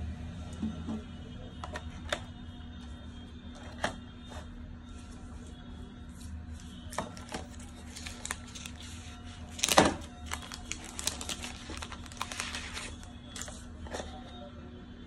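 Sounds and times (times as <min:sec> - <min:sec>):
plastic film crinkling: 0:07.1 - 0:13.6.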